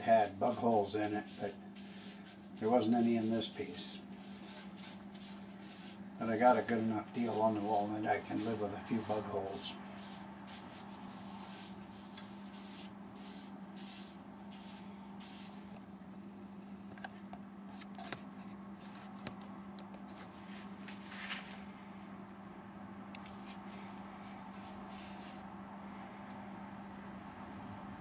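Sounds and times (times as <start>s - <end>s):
rag swishing on spinning bowl: 0.1s - 15.7s.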